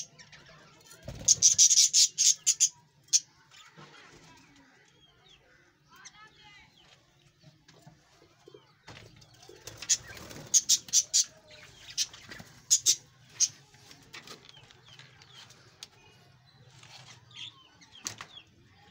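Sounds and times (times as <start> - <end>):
wings fluttering: 0.9 - 1.8, 8.9 - 11.1
budgerigars chirping: 1.2 - 3.2, 9.8 - 13.5.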